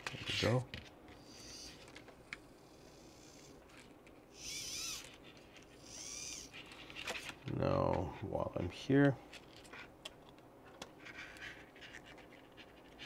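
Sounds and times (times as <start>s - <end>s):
plastic parts squeaking: 3.6s - 7.5s.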